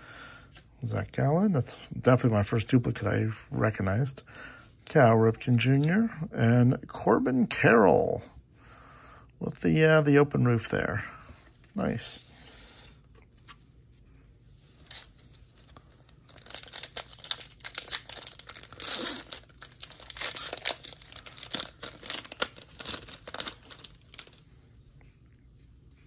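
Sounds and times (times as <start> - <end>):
foil wrapper tearing and crinkling: 14.9 - 24.4.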